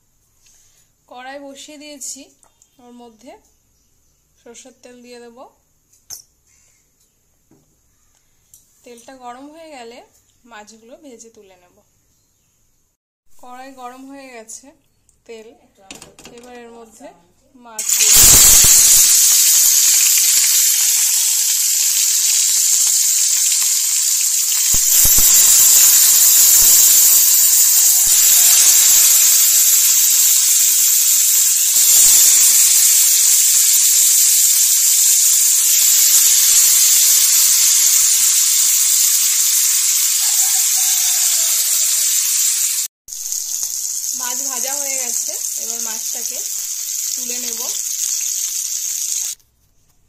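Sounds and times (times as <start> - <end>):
fish sizzling in hot oil: 17.8 - 49.4.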